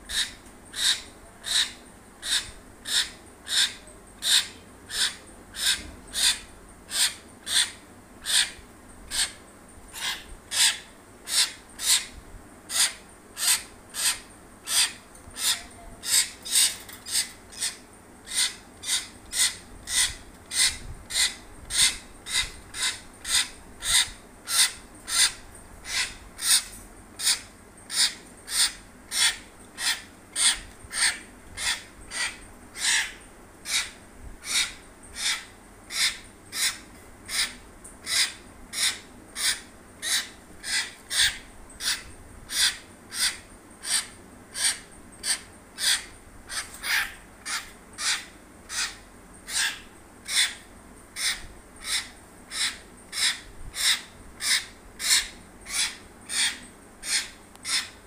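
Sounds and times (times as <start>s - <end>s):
bird giving harsh rasping calls: 0.1s - 58.0s.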